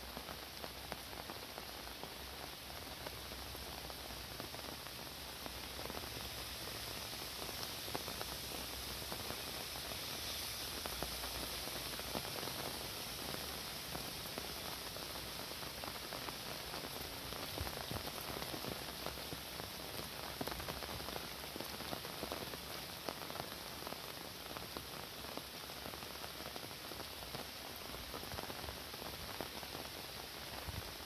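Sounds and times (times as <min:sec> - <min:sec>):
steady rain: 0:00.0 - 0:31.0.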